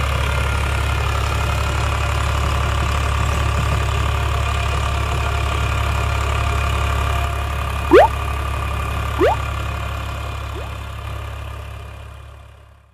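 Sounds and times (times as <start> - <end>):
short rising blips: 7.9 - 8.1, 9.2 - 9.4, 10.6 - 10.8.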